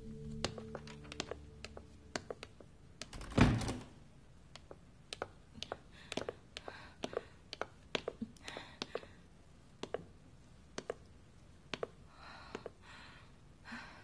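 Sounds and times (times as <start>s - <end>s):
wooden door thudding shut: 3.2s - 3.9s.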